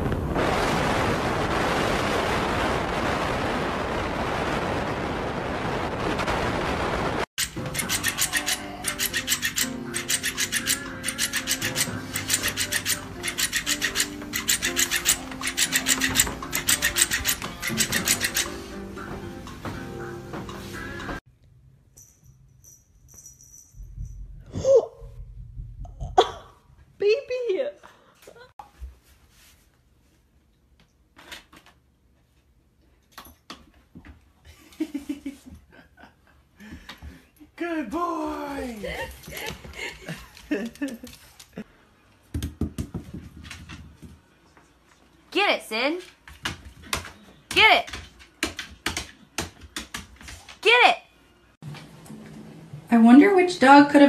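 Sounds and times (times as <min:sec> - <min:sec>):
background music: 0:07.4 - 0:21.2.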